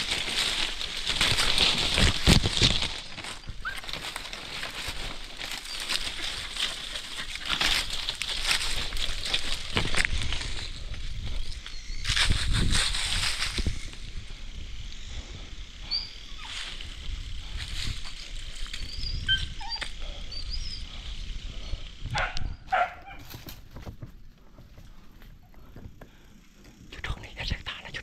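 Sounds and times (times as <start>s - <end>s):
rustling movement: 0.0s - 14.8s
dog whimpering: 18.8s - 20.9s.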